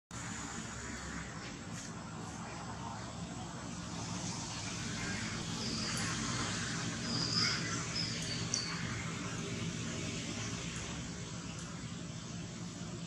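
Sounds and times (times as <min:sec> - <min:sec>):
steady outdoor hiss: 0:00.1 - 0:13.0
high bird chirps: 0:05.6 - 0:09.0.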